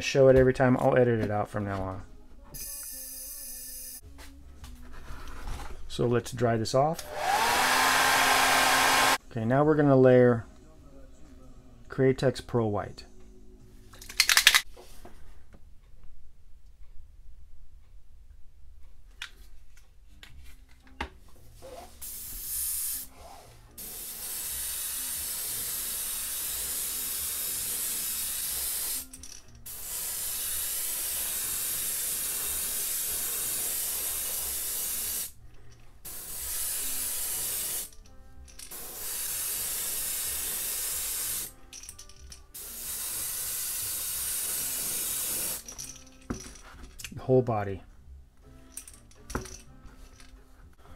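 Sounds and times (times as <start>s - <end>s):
airbrush hissing air: 7.0s - 9.2s, 22.0s - 29.0s, 29.7s - 35.4s, 36.1s - 37.9s, 38.7s - 41.5s, 42.6s - 45.6s.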